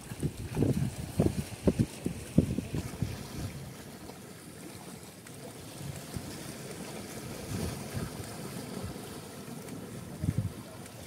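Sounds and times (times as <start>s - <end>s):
wind on microphone: 0.0s - 3.8s, 5.8s - 9.2s, 9.9s - 10.8s
water washing against a boat: 0.0s - 11.0s.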